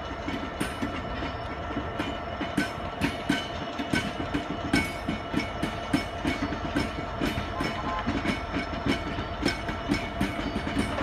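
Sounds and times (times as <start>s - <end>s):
steady locomotive hum: 0.0s - 11.0s
wagon wheels clanking over rail joints: 0.0s - 11.0s.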